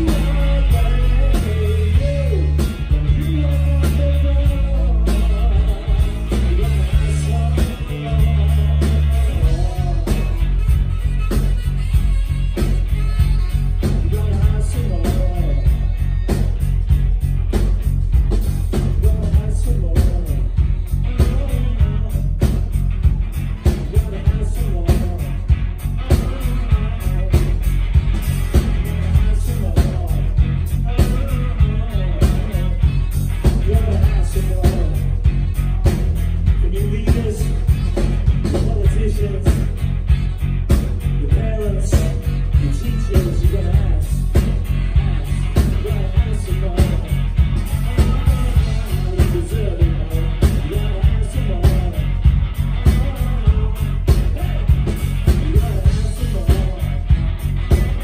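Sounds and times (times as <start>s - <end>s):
person singing: 0.0s - 17.0s, 18.6s - 22.7s, 23.6s - 58.0s
bass guitar: 0.0s - 58.0s
drums steady beat: 0.0s - 58.0s
electric guitars: 0.0s - 58.0s.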